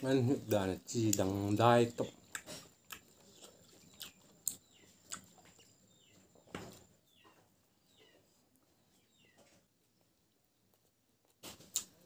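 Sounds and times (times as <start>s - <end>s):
wet eating clicks and smacks: 1.1s - 1.4s, 2.2s - 5.6s, 11.2s - 12.0s.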